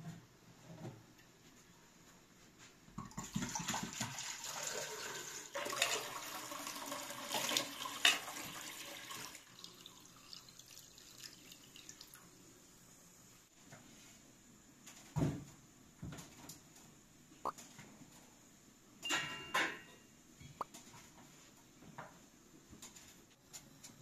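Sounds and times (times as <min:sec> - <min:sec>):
water pouring into metal vessel: 0:03.2 - 0:12.3.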